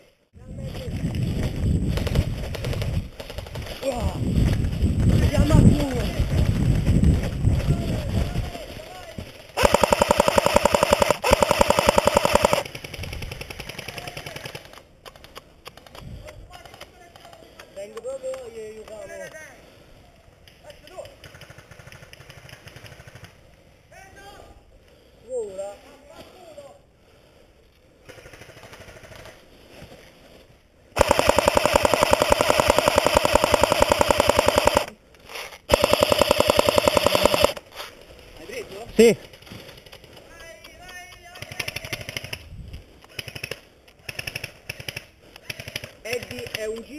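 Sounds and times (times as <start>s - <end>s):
airsoft rifle firing full auto: 9.6s - 15.3s, 31.0s - 35.0s, 35.7s - 37.6s
rapid clicking: 9.6s - 16.0s, 31.0s - 35.0s, 35.7s - 37.6s.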